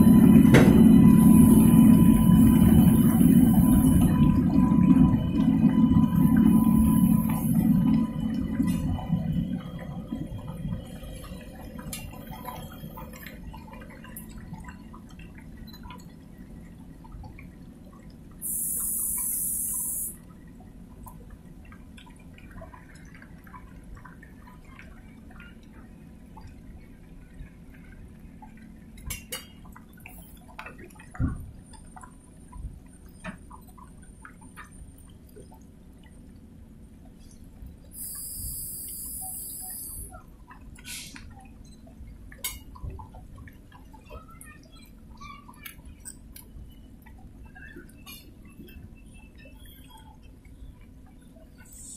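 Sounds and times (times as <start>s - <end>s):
train low rumble: 0.0s - 41.4s
water splashing and trickling: 0.0s - 51.9s.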